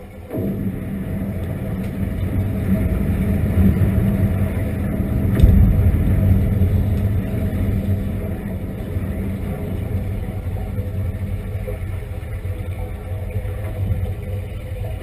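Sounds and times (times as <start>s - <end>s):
low mechanical hum underwater: 0.0s - 15.0s
air bubbling underwater: 0.3s - 15.0s
rush of air: 0.5s - 11.7s.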